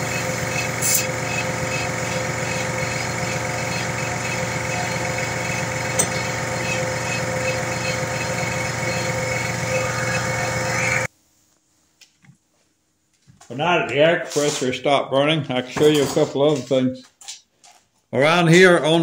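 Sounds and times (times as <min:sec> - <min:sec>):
air compressor running: 0:00.0 - 0:11.1.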